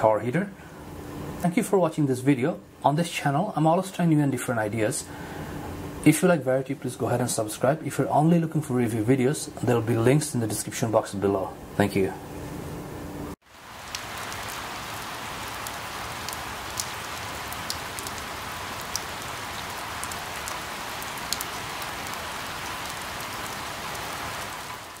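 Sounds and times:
rain falling on leaves: 13.4s - 25.0s.

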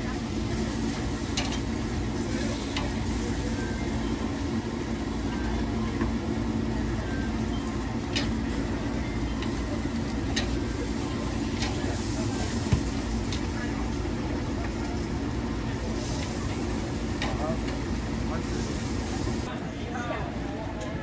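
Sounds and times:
low mechanical hum: 0.0s - 21.0s
steaks sizzling on a grill: 0.1s - 19.5s
tongs clicking on metal grate: 10.2s - 10.6s.

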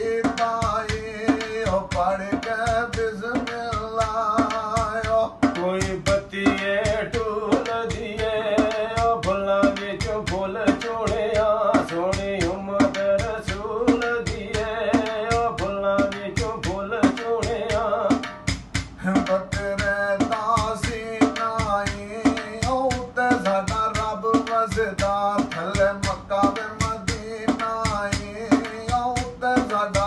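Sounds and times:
man singing folk verses: 0.0s - 18.3s, 19.0s - 30.0s
hand drum beat: 0.0s - 30.0s.

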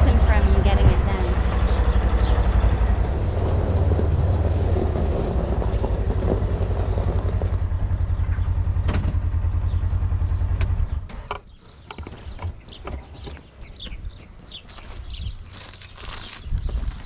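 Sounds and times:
vehicle engine throbbing: 0.0s - 11.5s.

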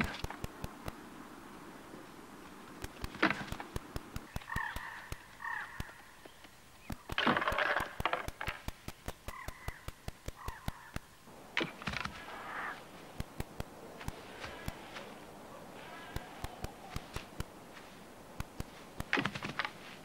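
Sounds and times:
sharp clicks: 0.0s - 1.2s, 2.5s - 20.0s
harsh hoarse animal calls: 4.3s - 6.1s, 9.2s - 17.6s.

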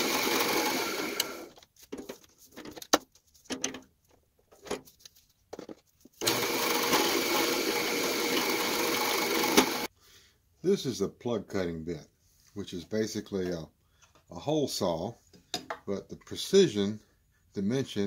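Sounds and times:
drill press boring into wood: 0.0s - 1.5s, 6.2s - 9.9s.

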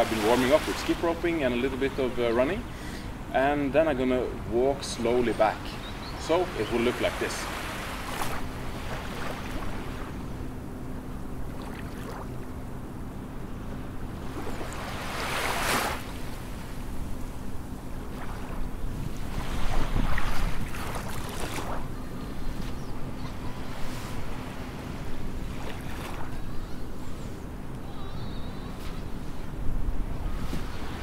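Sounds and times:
faint steady hum: 0.0s - 31.0s
wind buffeting microphone: 18.3s - 23.2s.

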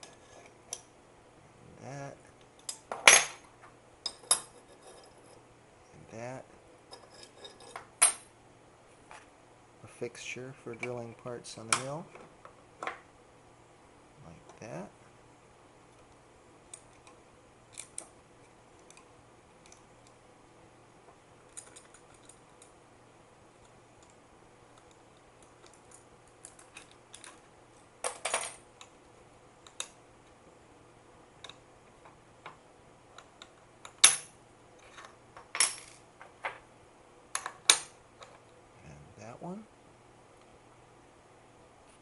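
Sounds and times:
small metal parts clicking: 21.5s - 22.7s, 24.8s - 28.9s.

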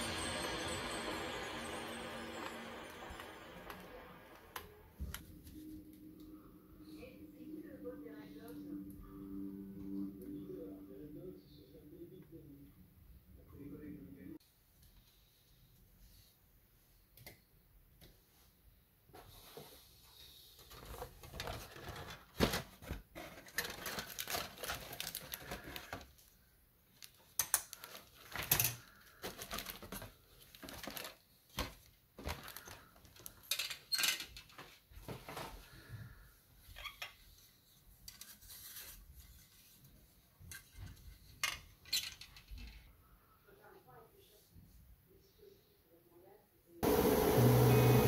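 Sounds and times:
plastic parts clicking and scraping: 20.7s - 26.1s, 27.0s - 34.6s.

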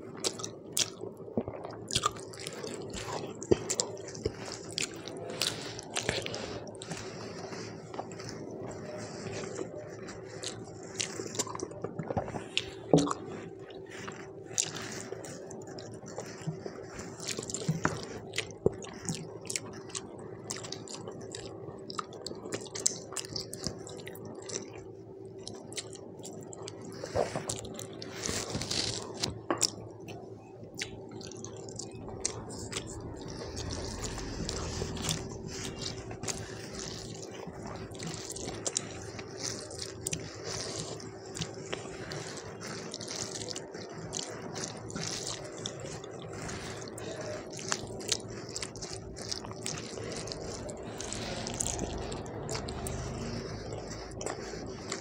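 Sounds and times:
wet squelches of mixing food: 0.0s - 55.0s
chewing and lip smacks: 0.1s - 55.0s.

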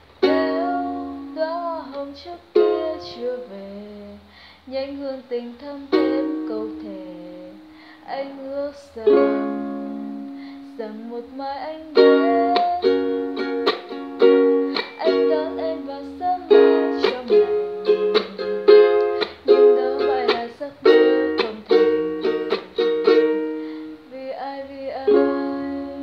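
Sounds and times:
ukulele strumming chords: 0.0s - 4.1s, 5.4s - 26.0s.

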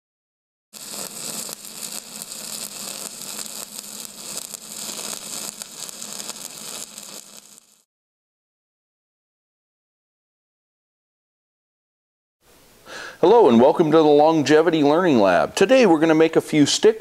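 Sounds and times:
welding arc crackling hiss: 0.7s - 7.9s.

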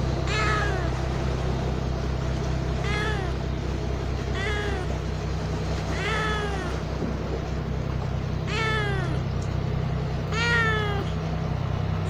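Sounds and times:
steady low hum: 0.0s - 12.0s
kitten meowing: 0.3s - 1.0s, 2.8s - 3.4s, 4.3s - 5.0s, 5.9s - 6.9s, 8.4s - 9.2s, 10.3s - 11.2s.

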